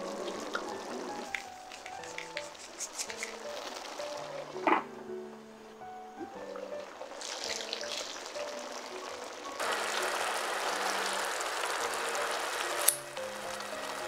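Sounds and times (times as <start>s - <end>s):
food bubbling in a pan: 0.0s - 1.3s, 6.2s - 14.0s
kitchen scissors snipping: 1.8s - 3.4s.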